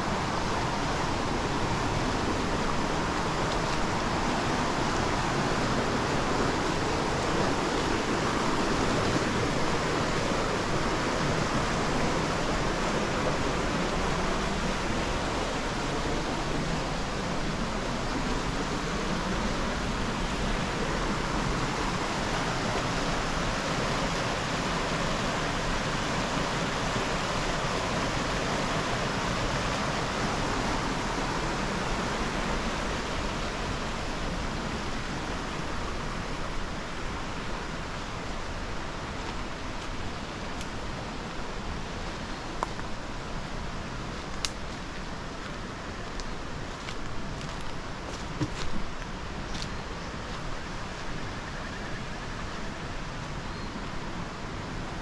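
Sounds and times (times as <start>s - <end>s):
rushing river and waterfall: 0.0s - 55.0s.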